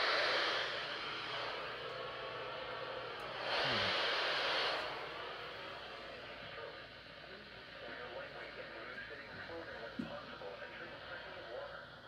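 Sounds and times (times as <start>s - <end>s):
radio static hiss: 3.3s - 12.0s.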